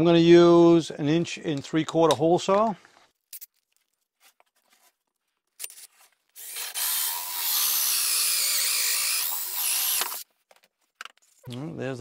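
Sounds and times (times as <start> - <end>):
cordless drill with hole saw: 6.4 - 10.2.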